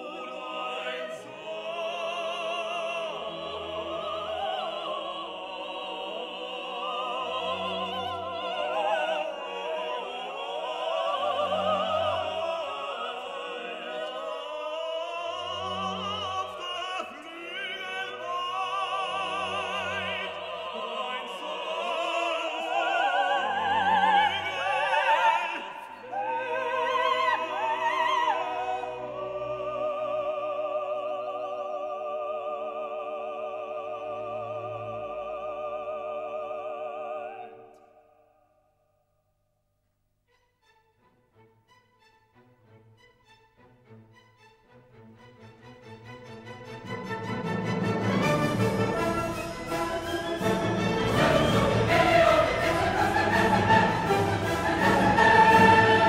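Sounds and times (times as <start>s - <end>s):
operatic singing with vibrato: 0.0s - 38.4s, 44.9s - 56.0s
orchestral accompaniment: 40.3s - 56.0s.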